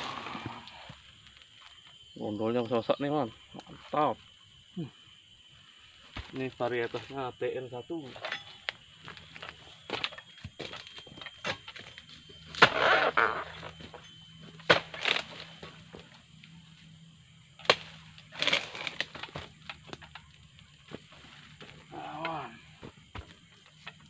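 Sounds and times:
chisel cracking into palm stalk: 12.5s - 13.4s, 14.6s - 15.7s, 17.6s - 20.0s
dry fronds crackling: 14.6s - 15.9s, 17.6s - 22.6s.

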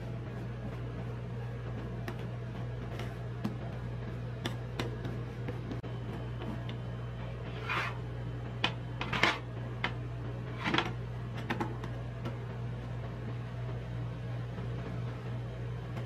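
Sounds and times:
steady low hum: 0.0s - 16.0s
metal spatulas scraping on steel: 7.4s - 8.0s.

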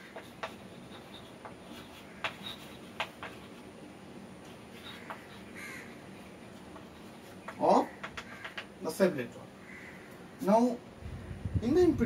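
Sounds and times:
chalk scratching on chalkboard: 0.0s - 3.7s, 4.4s - 8.7s
chalk tapping on board: 0.0s - 3.7s, 4.5s - 8.8s.

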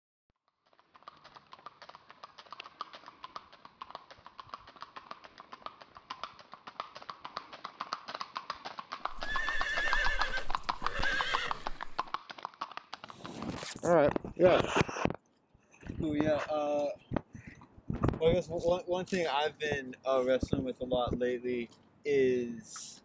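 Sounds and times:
horse hoofbeats clip-clopping: 0.4s - 15.0s
horse neighing: 9.0s - 12.1s.

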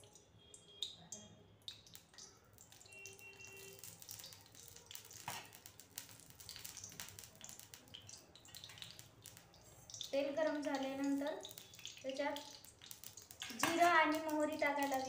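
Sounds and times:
cooking oil crackling in a pan: 0.0s - 15.0s.

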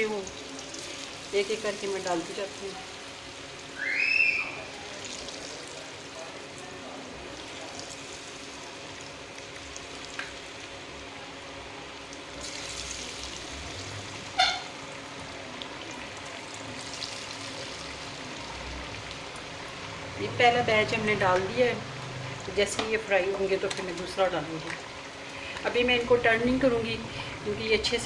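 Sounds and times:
deep-frying sizzle and bubbling: 0.0s - 28.0s.

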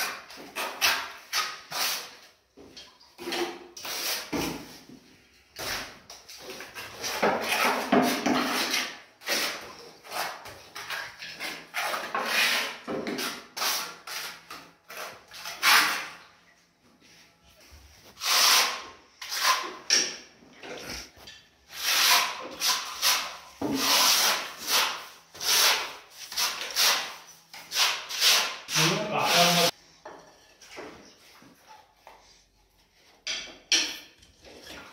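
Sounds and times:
trowel scraping adhesive: 0.0s - 2.3s, 3.8s - 4.7s, 5.6s - 16.2s, 18.0s - 20.1s, 20.8s - 29.8s
sponge rubbing on plastered wall: 18.0s - 19.8s, 20.8s - 29.8s.

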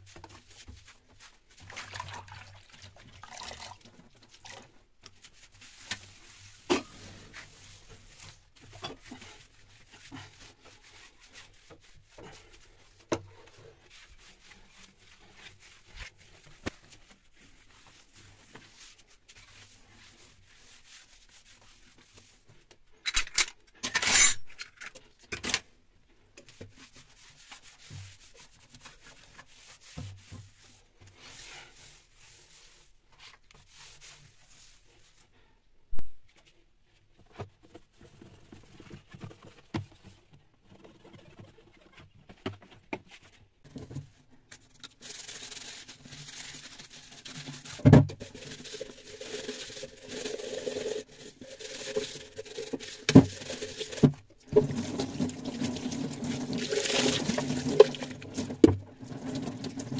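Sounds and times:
cloth wiping ceramic tiles: 0.1s - 3.0s, 4.1s - 22.6s, 26.5s - 35.6s.

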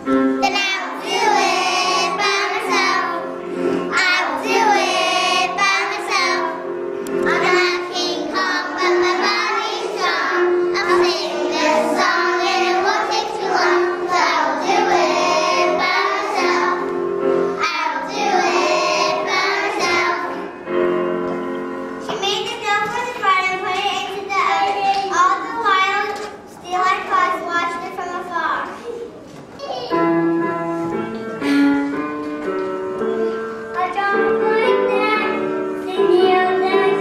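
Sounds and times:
instrumental accompaniment: 0.0s - 27.3s, 29.2s - 37.0s
children singing in unison: 0.4s - 6.6s, 7.2s - 16.9s, 17.5s - 20.5s.

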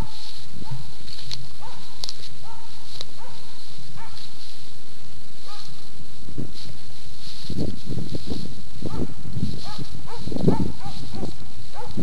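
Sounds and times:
dog barking: 0.0s - 1.0s, 1.6s - 4.3s, 5.4s - 5.8s, 8.8s - 12.0s.

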